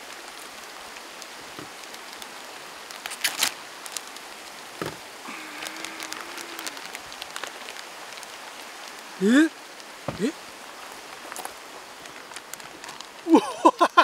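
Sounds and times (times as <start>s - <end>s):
mountain stream rushing: 0.0s - 14.0s
paper and plastic bag crinkling: 2.2s - 8.3s, 11.1s - 13.4s.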